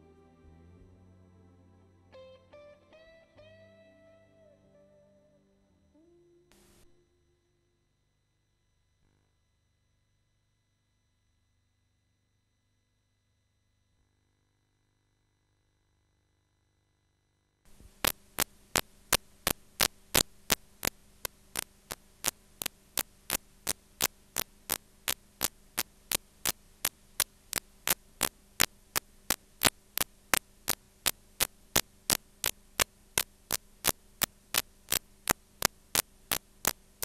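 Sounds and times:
tape playback hum: 0.0s - 7.3s, 17.6s - 37.0s
sharp regular clicks: 17.7s - 37.0s.

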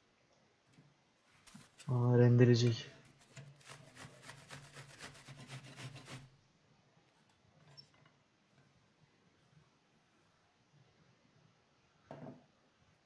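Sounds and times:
toilet paper rasping on grater: 3.0s - 6.3s.

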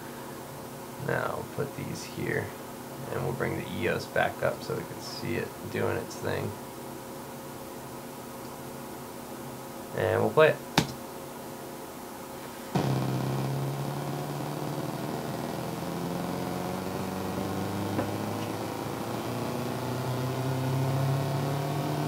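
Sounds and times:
buzzy synth note rising: 12.7s - 22.0s.

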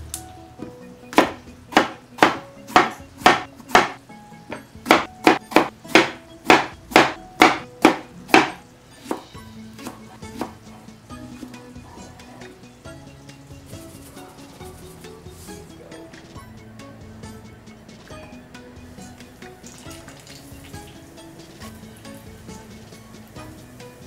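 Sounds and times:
knife chopping on wooden board: 1.1s - 10.7s.

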